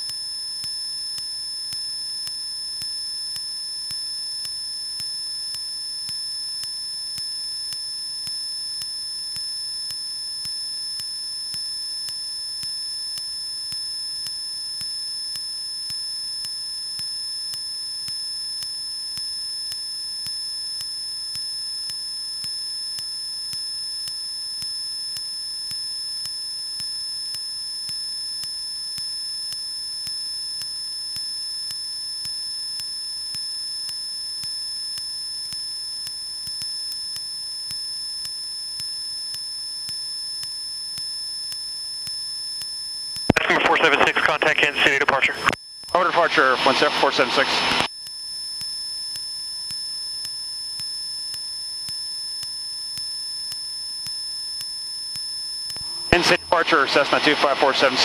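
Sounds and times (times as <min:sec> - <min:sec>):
high-pitched electrical whine: 0:43.3 - 0:48.0, 0:55.4 - 0:58.0.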